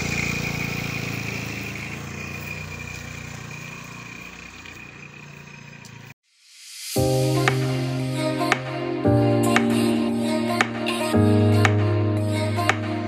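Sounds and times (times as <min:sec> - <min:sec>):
motor scooter engine pulling away: 0:00.0 - 0:06.2.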